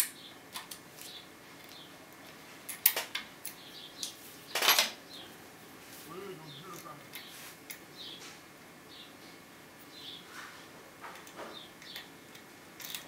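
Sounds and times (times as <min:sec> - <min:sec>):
lock picks clinking and rattling: 0:11.2 - 0:13.0.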